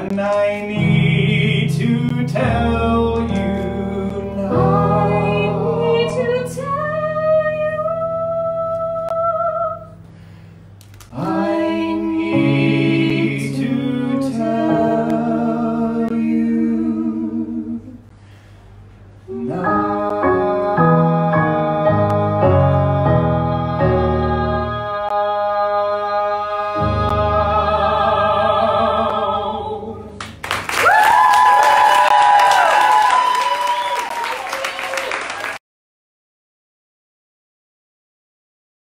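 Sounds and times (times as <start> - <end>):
man and woman singing duet: 0.0 - 9.9, 11.1 - 18.0, 19.3 - 30.2.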